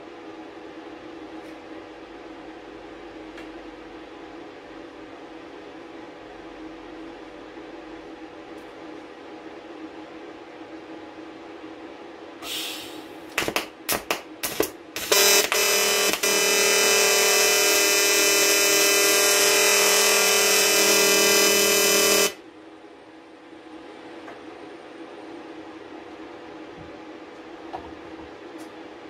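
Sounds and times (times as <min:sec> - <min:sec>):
welding arc buzzing: 0:13.4 - 0:22.4
stuttering arc strikes: 0:14.4 - 0:22.4.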